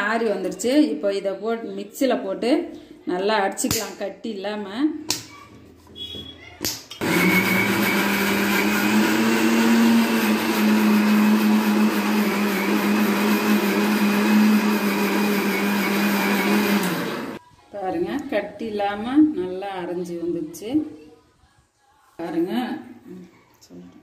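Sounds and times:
mixer grinder humming: 0:07.0 - 0:17.4.

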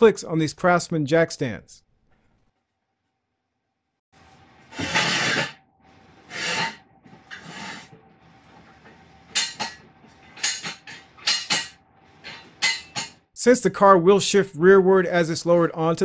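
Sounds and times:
jack stand scraping on concrete: 0:04.7 - 0:05.6, 0:06.2 - 0:08.0.

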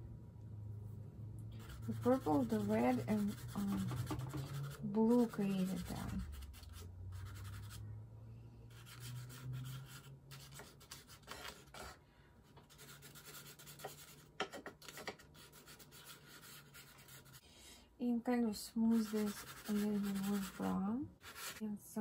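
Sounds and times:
faint low hum: 0:00.0 - 0:14.2
pastel scratching on paper: 0:01.6 - 0:07.8, 0:08.7 - 0:11.9, 0:12.7 - 0:17.4, 0:18.9 - 0:21.6.

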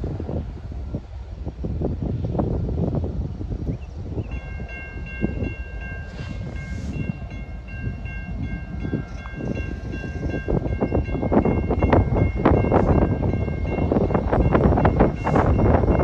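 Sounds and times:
low gusty rumble: 0:00.0 - 0:16.0
railroad crossing bell ringing: 0:04.2 - 0:16.0.

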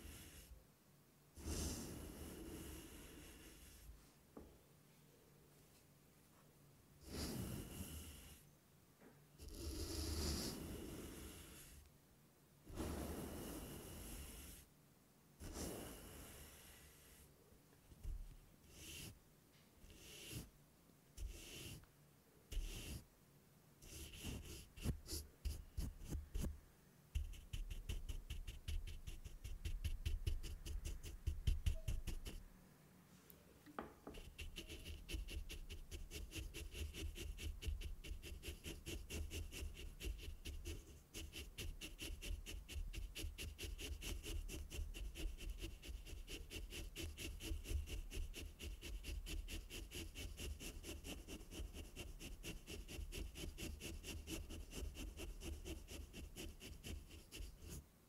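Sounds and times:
fuzzy cover rubbing microphone: 0:01.4 - 0:02.5, 0:09.4 - 0:11.8, 0:15.4 - 0:16.1, 0:23.9 - 0:26.5.

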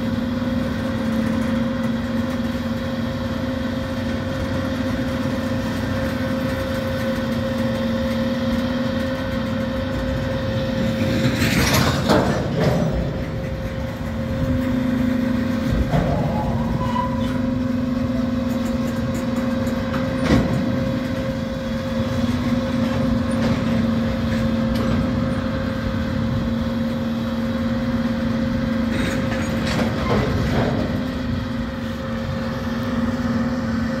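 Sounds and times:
freight train cars rolling: 0:00.0 - 0:34.0
train wheels and couplers clanking: 0:05.7 - 0:21.4.

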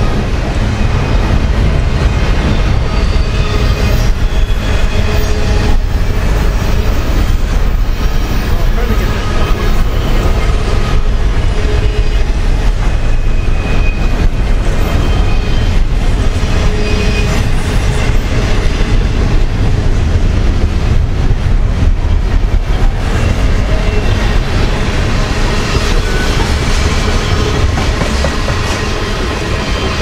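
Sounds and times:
freight train wheels rumbling: 0:00.0 - 0:30.0.

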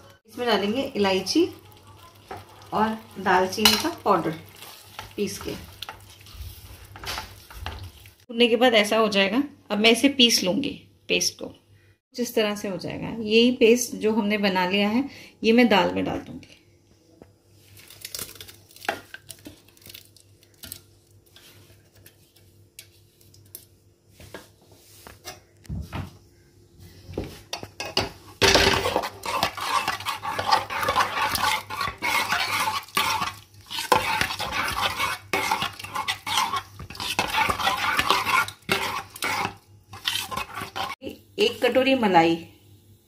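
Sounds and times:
spoon scraping in metal pot: 0:01.2 - 0:06.2, 0:27.5 - 0:41.0.

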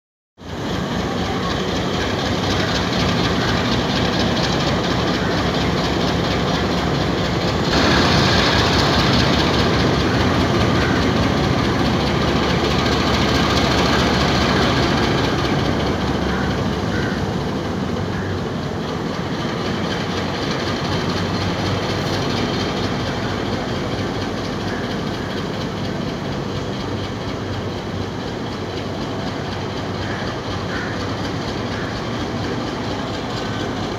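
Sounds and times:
diesel locomotive engine throbbing: 0:00.4 - 0:33.9
loud hiss: 0:07.6 - 0:15.0.

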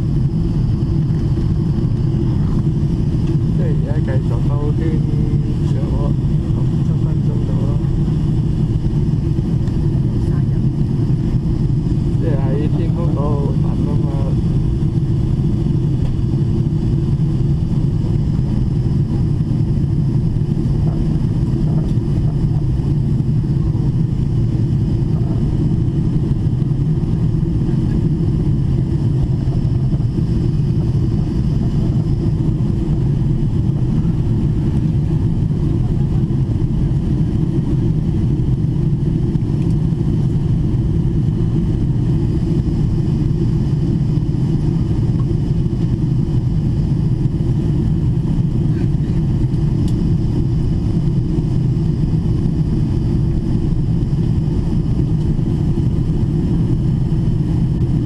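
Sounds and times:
airliner cabin rumble: 0:00.0 - 0:58.0.

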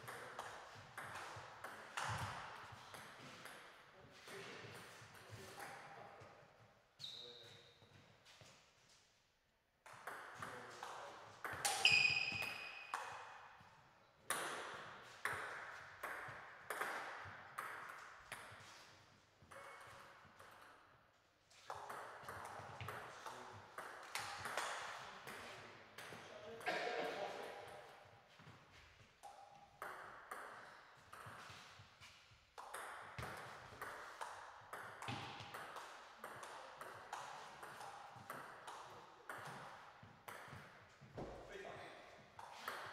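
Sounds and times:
table tennis ball hits: 0:00.0 - 0:03.7, 0:09.9 - 0:13.3, 0:14.3 - 0:18.6, 0:29.2 - 0:31.4, 0:32.6 - 0:41.4, 0:42.4 - 0:42.9
short high squeaks: 0:11.8 - 0:12.8.

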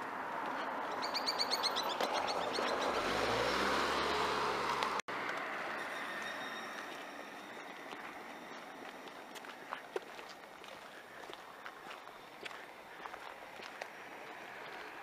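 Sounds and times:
vehicle passing with rumble: 0:00.0 - 0:06.2
bird chirping: 0:00.8 - 0:03.2.

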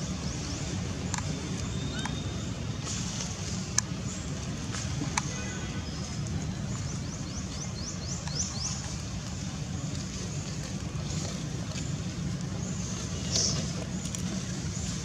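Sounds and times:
steady low rumble: 0:06.0 - 0:15.0.

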